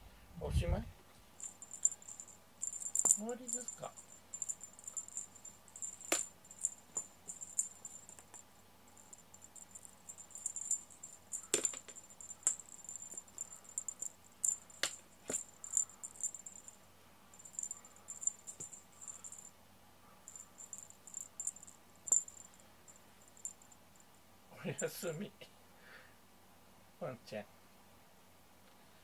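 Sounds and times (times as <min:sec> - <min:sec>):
insect chirping: 0:01.4 - 0:19.6, 0:20.2 - 0:24.3.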